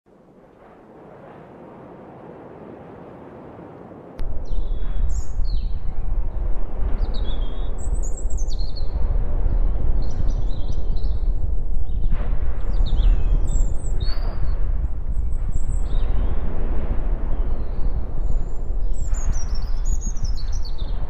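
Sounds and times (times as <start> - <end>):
deep steady rumble: 4.2 - 21.0
birds chirping: 4.4 - 16.5.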